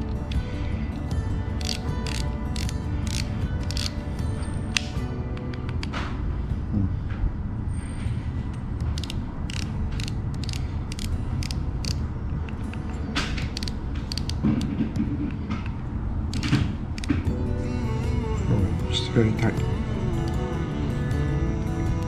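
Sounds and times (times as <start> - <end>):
steady low hum: 0.0 - 22.0
fishing reel clicks and creaks: 1.6 - 4.0, 8.8 - 12.0, 13.4 - 14.4.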